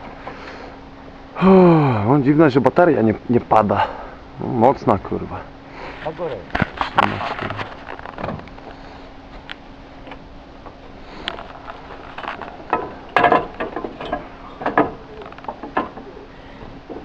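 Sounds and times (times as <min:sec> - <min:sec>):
roof tiles clacking: 0:10.7 - 0:16.2.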